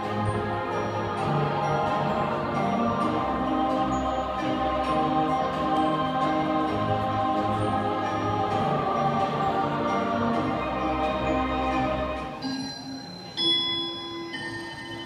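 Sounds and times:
choral and orchestral music: 0.0s - 15.0s
high bell-like notes: 12.3s - 15.0s.

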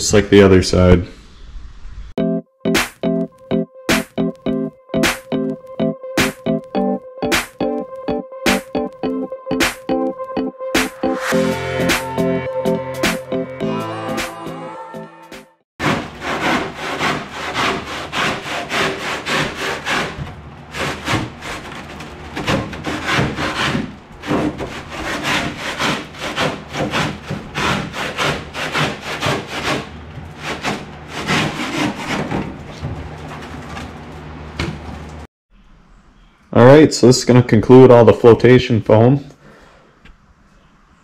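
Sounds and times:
handsaw cutting foam: 15.8s - 32.6s.

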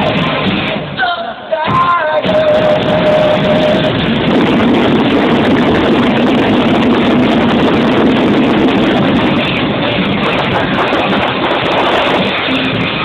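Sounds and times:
fireworks barrage crackling: 0.0s - 13.0s.

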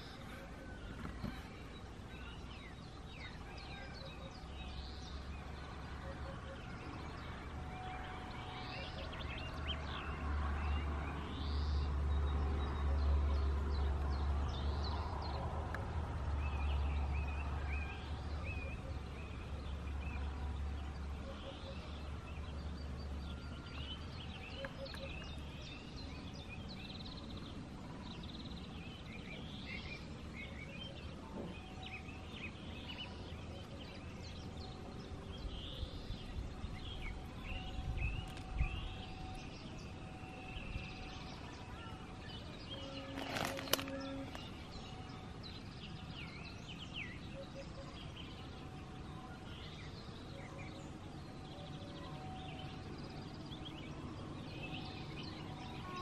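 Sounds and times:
birds calling and chirping: 0.0s - 56.0s.

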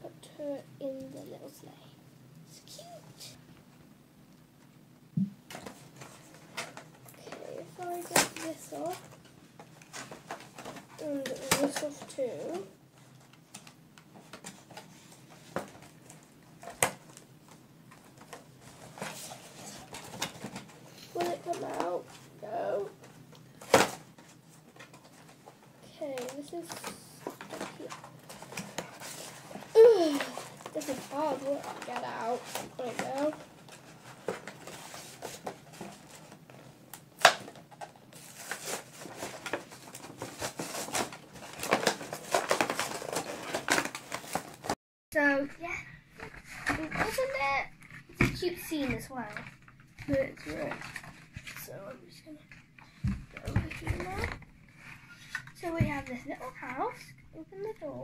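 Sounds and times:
packaging rustling: 5.5s - 44.8s.

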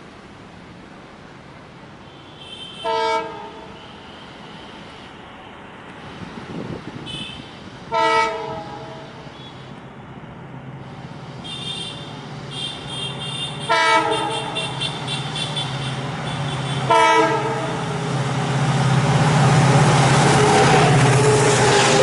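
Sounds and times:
train horn blasts: 2.4s - 4.1s, 7.1s - 9.0s, 11.4s - 17.8s
locomotive engine drone: 7.6s - 22.0s.

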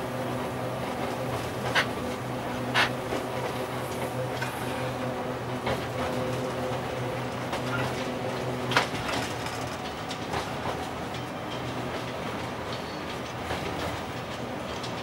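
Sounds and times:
train traction equipment hum: 0.0s - 15.0s
wheels clacking over rail joints: 0.8s - 4.6s.

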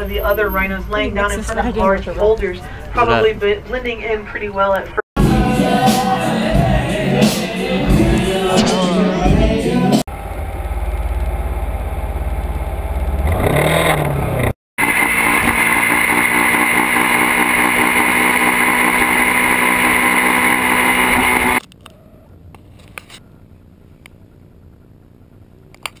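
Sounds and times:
motorcycle engine revving: 10.0s - 21.7s
motorcycle engine running at speed: 10.1s - 21.7s.

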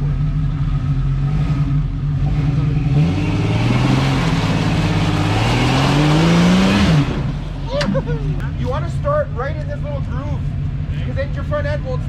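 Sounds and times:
truck engine revving under load: 0.0s - 8.8s.

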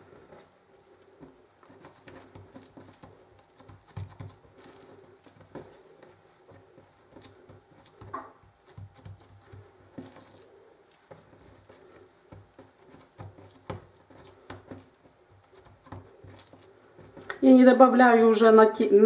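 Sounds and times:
hands patting dough: 0.0s - 19.0s.

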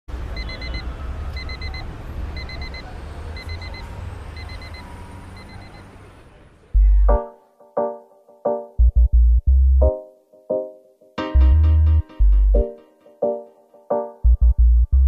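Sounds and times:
electronic alarm beeping: 0.4s - 5.9s.

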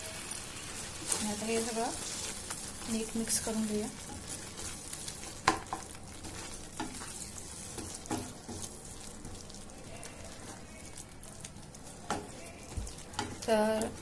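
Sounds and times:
cooking sizzling hiss: 0.0s - 14.0s.

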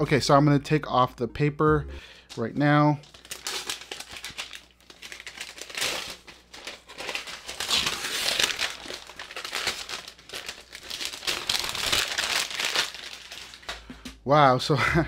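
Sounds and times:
paper wrap crinkling: 2.3s - 14.0s.

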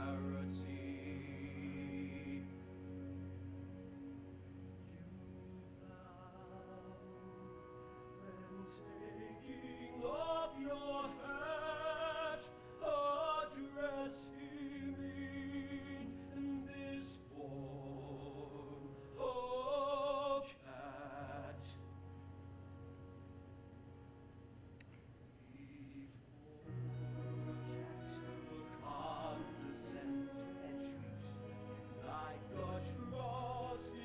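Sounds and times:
orchestral chords: 0.0s - 19.8s, 26.7s - 34.0s
person singing operatically: 0.0s - 21.8s, 25.4s - 34.0s.

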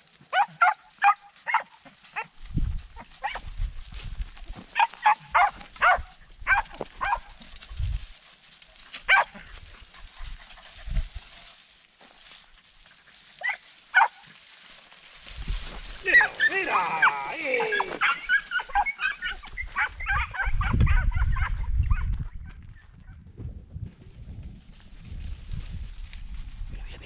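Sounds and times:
dogs yelping: 0.3s - 2.3s, 3.0s - 3.5s, 4.7s - 7.8s, 9.0s - 11.0s, 13.2s - 14.3s, 16.0s - 22.9s.

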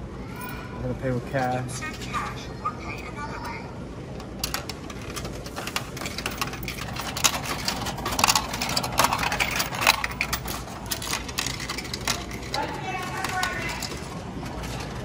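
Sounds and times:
coins clinking through machine: 4.2s - 15.0s.

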